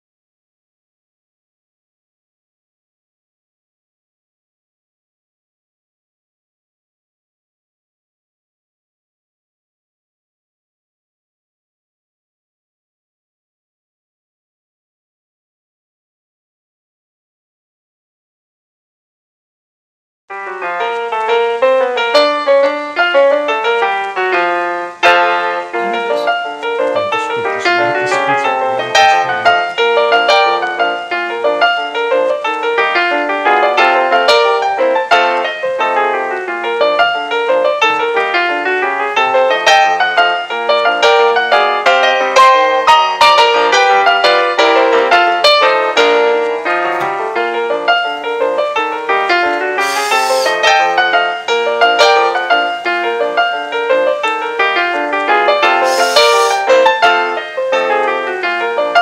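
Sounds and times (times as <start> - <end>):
lively piano melody: 20.3 - 59.0.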